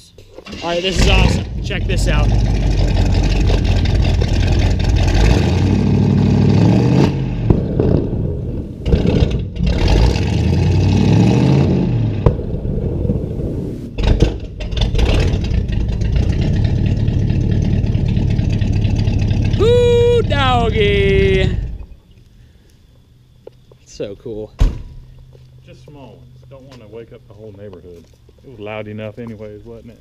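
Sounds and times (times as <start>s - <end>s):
car engine revving: 0.6s - 12.3s
exhaust pops and cracks: 1.0s - 5.8s, 7.4s - 10.0s, 14.0s - 19.6s.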